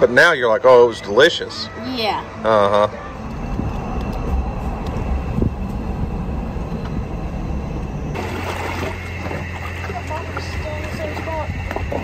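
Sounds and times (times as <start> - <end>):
vehicle road noise rumble: 3.0 - 12.0.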